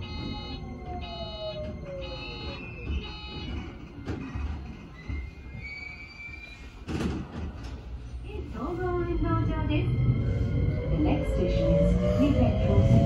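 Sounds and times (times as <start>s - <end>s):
electric train rumble: 7.3s - 13.0s.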